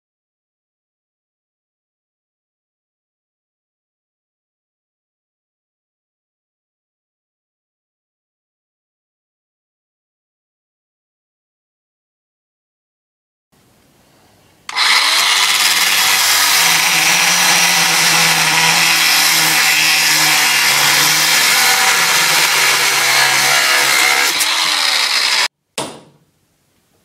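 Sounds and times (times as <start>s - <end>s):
angle grinder cutting steel: 14.7s - 25.5s
short knock: 25.8s - 26.2s.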